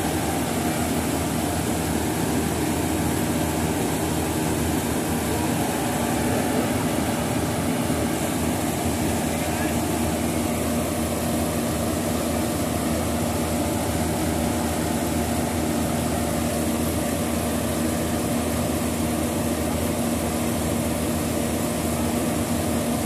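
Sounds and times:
combine harvester diesel engine: 0.0 - 23.0.

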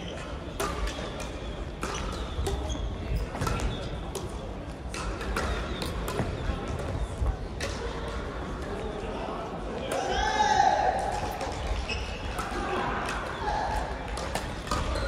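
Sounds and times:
shoes squeaking on hall floor: 0.0 - 4.1, 4.9 - 7.3, 11.4 - 12.5, 13.2 - 15.0.

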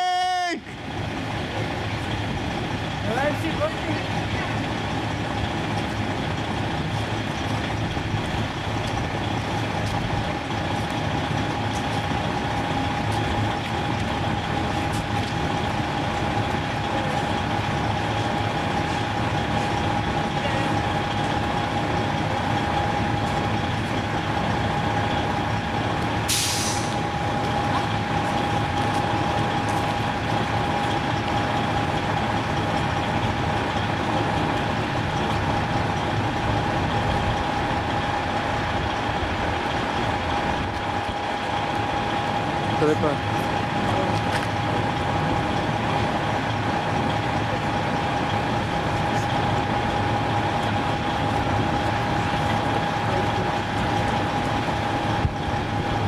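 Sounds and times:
diesel truck engine idling: 0.0 - 56.0
high engine whine: 0.0 - 56.0
compressed air hiss: 26.3 - 27.0.

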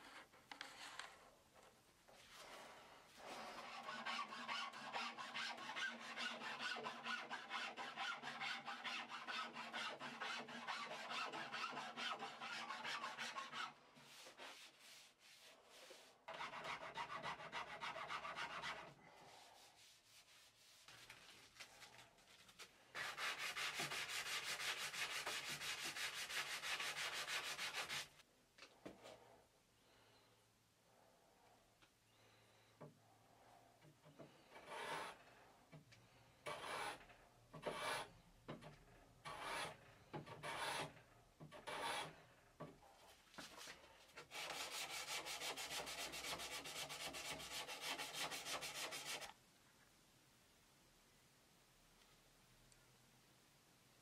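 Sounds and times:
hand tool scraping wood: 39.3 - 42.2.

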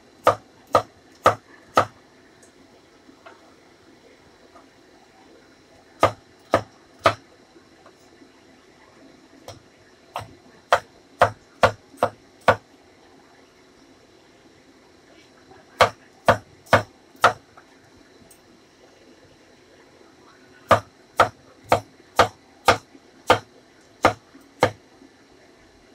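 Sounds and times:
cleaver chopping on wooden board: 0.2 - 1.9, 20.7 - 24.8.

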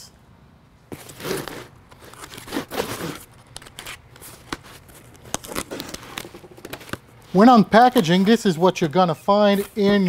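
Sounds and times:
tape and cardboard tearing: 0.9 - 8.4
utility knife slitting tape: 1.0 - 7.0.

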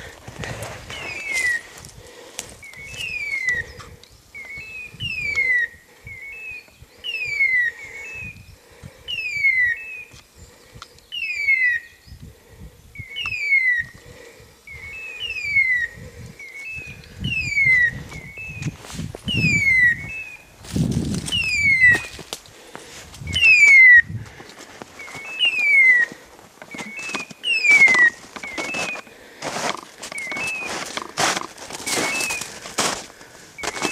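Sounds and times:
footsteps in brush: 0.0 - 3.9, 18.1 - 19.4, 20.0 - 33.9
beeper collar chirp and whistle tone: 2.6 - 3.7, 11.1 - 12.0, 13.0 - 13.9, 14.7 - 20.4, 21.3 - 22.2, 25.0 - 26.1, 26.7 - 29.1, 30.1 - 30.8, 31.8 - 32.5, 33.6 - 33.9.

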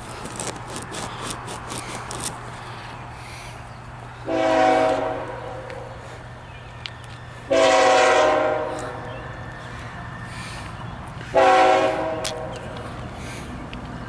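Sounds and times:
locomotive air horn blasts: 4.2 - 5.7, 7.5 - 9.0, 11.2 - 12.6.

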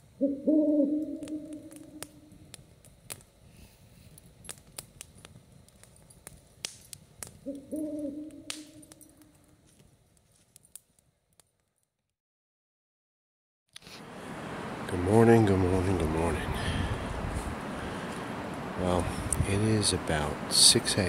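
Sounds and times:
campfire crackling: 0.0 - 12.1, 13.7 - 21.0
owl hooting: 0.2 - 2.1, 7.4 - 8.5.

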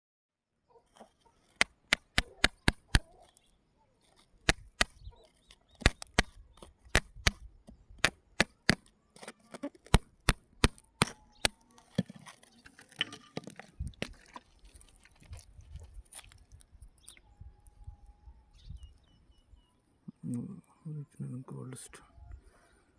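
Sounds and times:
digging tool knocking pebbles: 1.5 - 3.3, 4.1 - 7.4, 8.0 - 17.2.

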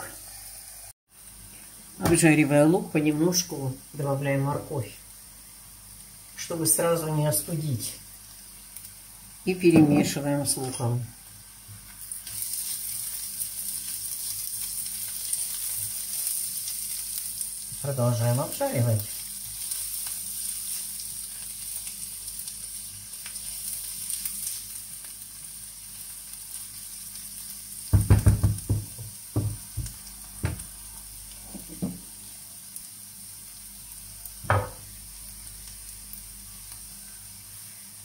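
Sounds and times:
vegetables sizzling in oil: 0.0 - 38.0
spatula knocking on pan: 27.9 - 30.6, 34.5 - 34.8.

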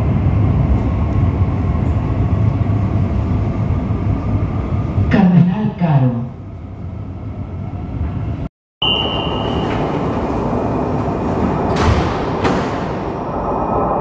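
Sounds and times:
train running equipment noise: 0.0 - 5.4, 6.1 - 14.0
train rumbling along track: 0.0 - 14.0
short high beep: 8.8 - 9.6.

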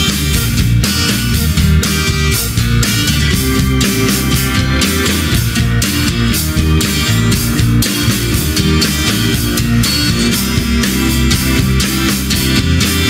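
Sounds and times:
drum kit beat: 0.0 - 13.0
rock guitar: 0.0 - 13.0.

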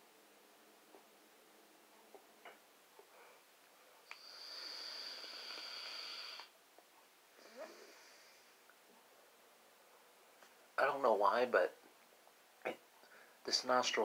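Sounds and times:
air hissing through vape: 4.1 - 6.5.

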